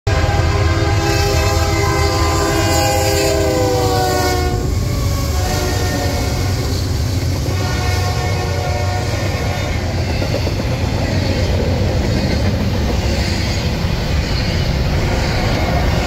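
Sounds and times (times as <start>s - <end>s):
locomotive air horn chord: 0.1s - 9.9s
train rumbling: 0.1s - 16.0s.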